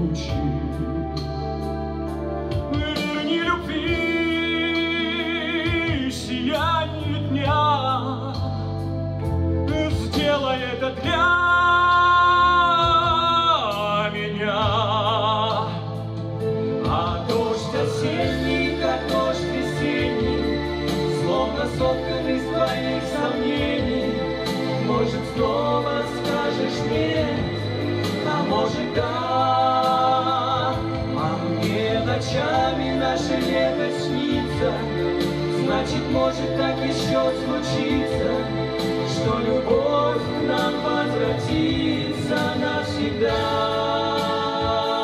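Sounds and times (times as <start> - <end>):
instrumental backing track: 0.0 - 45.0
man and woman singing duet: 2.6 - 8.6, 9.7 - 16.1, 16.8 - 45.0.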